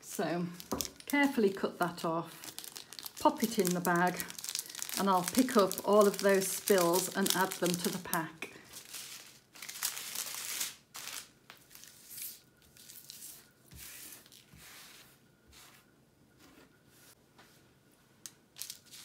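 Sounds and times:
plastic bags rustling: 0:00.0 - 0:13.4, 0:18.6 - 0:19.0.

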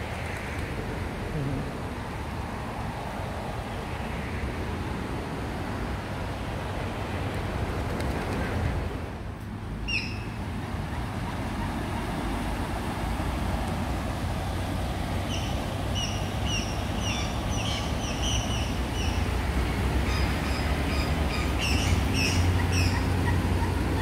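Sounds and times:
bird calling: 0:09.8 - 0:12.1, 0:15.2 - 0:24.0
bird chirping: 0:09.9 - 0:10.4, 0:20.1 - 0:24.0.

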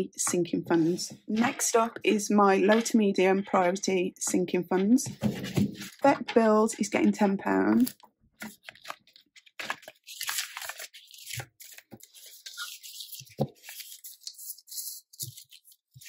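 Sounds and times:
banknotes and plastic pocket crinkling: 0:07.7 - 0:16.0.

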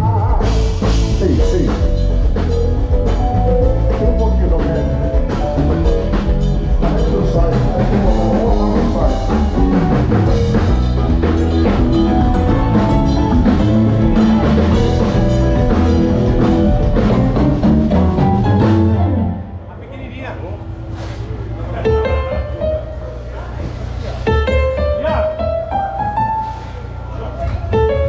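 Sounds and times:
drum kit beat: 0:00.0 - 0:19.4
band playing: 0:00.0 - 0:28.0.

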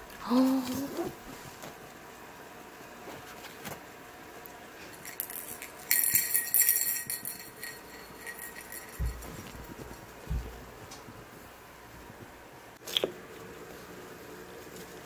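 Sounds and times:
small bell jingling: 0:05.0 - 0:09.9.

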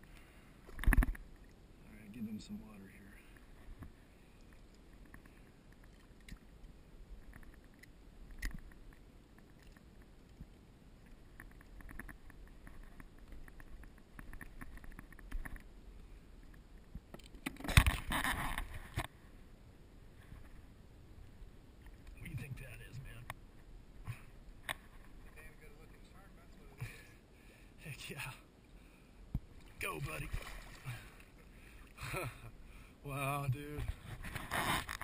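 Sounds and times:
water splashing and lapping: 0:29.5 - 0:32.1
loud splash: 0:29.8 - 0:31.0.

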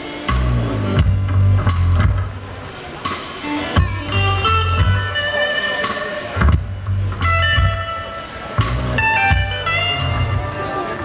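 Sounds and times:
bass line: 0:00.3 - 0:02.6, 0:03.6 - 0:05.6, 0:06.2 - 0:11.0
drum hits: 0:00.3 - 0:10.5.

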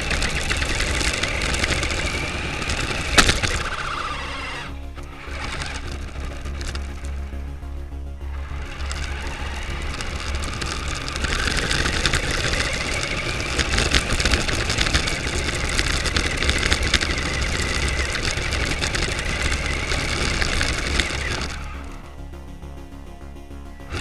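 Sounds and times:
toy car motor whining: 0:00.0 - 0:07.3, 0:08.3 - 0:22.1, 0:23.8 - 0:24.0
small tyres rattling on gritty surface: 0:00.0 - 0:22.2, 0:23.8 - 0:24.0.

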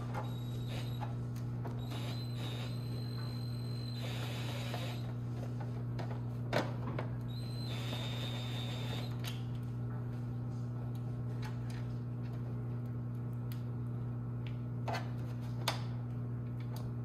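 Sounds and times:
steady low hum: 0:00.0 - 0:17.0
cordless drill whining: 0:00.2 - 0:01.0, 0:01.8 - 0:05.1, 0:07.3 - 0:09.2.

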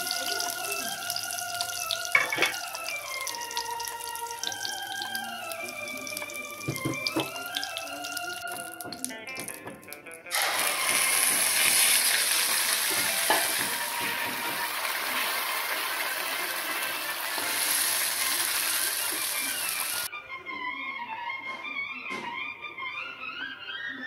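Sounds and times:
hot oil sizzling loudly: 0:00.0 - 0:09.7, 0:10.3 - 0:20.1
wooden spatula stirring in pan: 0:00.0 - 0:20.1.

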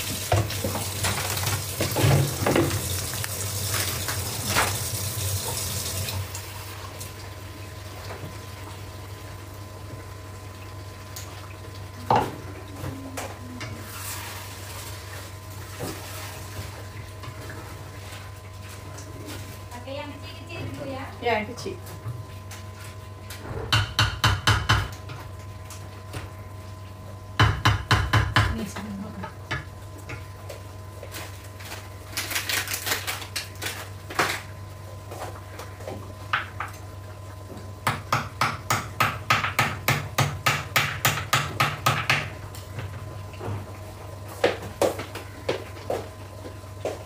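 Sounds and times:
rapid knocking of kitchen utensils: 0:23.7 - 0:25.0, 0:27.4 - 0:29.0, 0:37.8 - 0:42.3.

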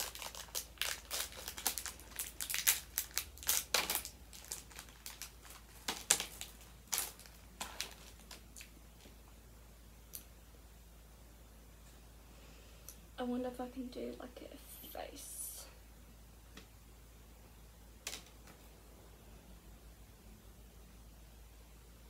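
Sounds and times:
plastic bag crinkling: 0:00.0 - 0:09.2.

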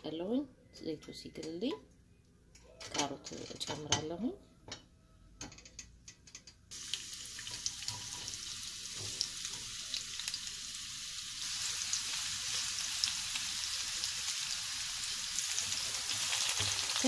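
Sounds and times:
carrots sizzling in hot oil: 0:06.7 - 0:17.0.

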